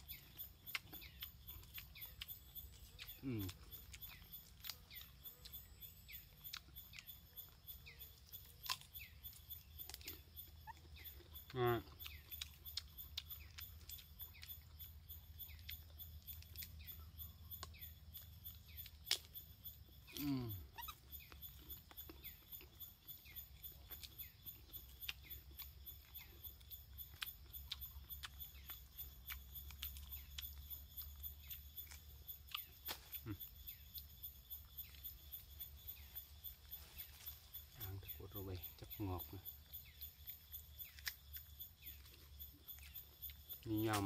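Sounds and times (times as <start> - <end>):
monkey chewing fruit: 0.0 - 44.0.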